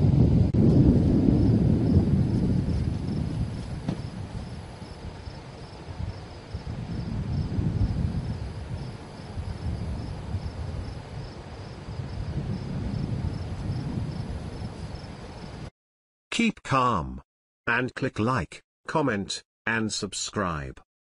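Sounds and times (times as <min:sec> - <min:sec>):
wind buffeting microphone: 0:00.0 - 0:15.7
insects chirping: 0:00.7 - 0:15.7.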